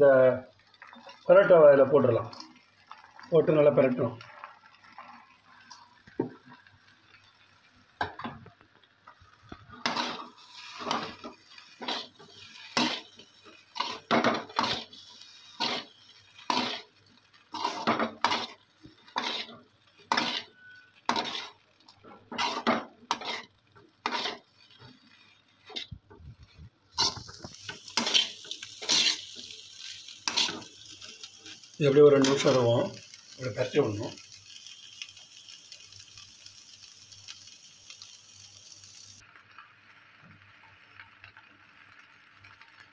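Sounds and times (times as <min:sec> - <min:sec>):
steel ladle scraping a metal pan: 0:09.8 - 0:21.6, 0:22.3 - 0:24.8, 0:27.0 - 0:29.5, 0:30.2 - 0:30.7.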